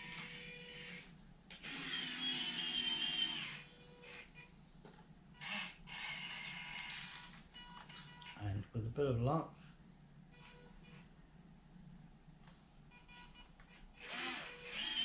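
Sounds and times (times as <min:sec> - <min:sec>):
servos whining: 0:00.0 - 0:04.5, 0:05.4 - 0:07.3, 0:14.0 - 0:15.0.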